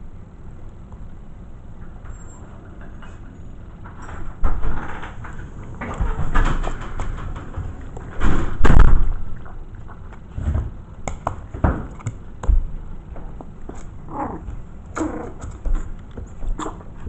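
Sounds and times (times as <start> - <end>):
puppies pawing knocks and scratches: 1.8 - 17.0
puppy whines: 14.0 - 15.9.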